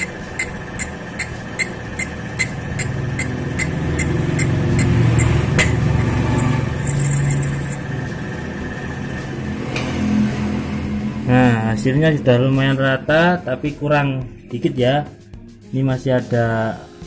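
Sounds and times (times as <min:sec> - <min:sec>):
sharp even ticks: 0:00.0 - 0:05.7
metal lathe hum: 0:00.0 - 0:09.8.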